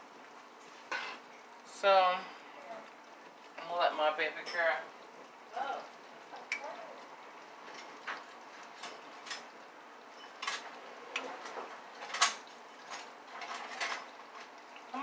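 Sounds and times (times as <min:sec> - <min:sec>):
kitchen utensils and dishes clinking: 0:00.9 - 0:01.4, 0:04.4 - 0:04.8, 0:08.8 - 0:09.5, 0:10.1 - 0:14.5.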